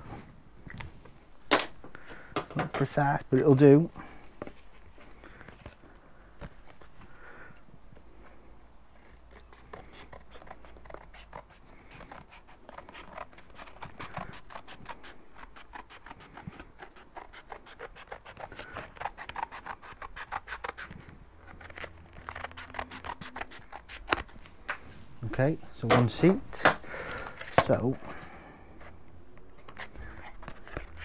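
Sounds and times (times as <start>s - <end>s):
scissors snipping cardboard: 9.3s - 24.3s.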